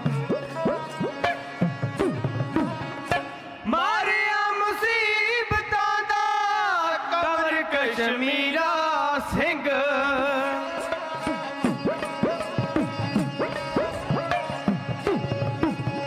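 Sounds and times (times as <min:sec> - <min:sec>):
bowed string accompaniment: 0:00.0 - 0:04.2, 0:10.2 - 0:16.0.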